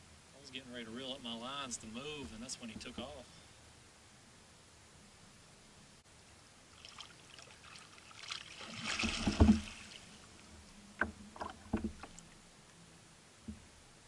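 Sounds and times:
water splashing at a kayak: 6.7s - 12.5s
sharp knocks: 9.0s - 9.8s.

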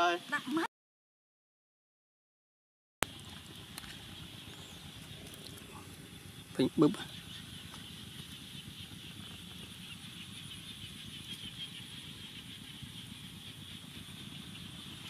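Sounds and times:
wood fire crackling: 3.0s - 9.8s
constant high hiss: 3.0s - 15.0s
low steady rustle: 3.0s - 15.0s.

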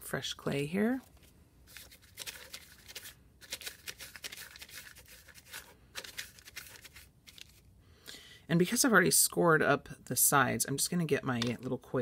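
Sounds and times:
clay rolled on newspaper: 0.9s - 7.7s.

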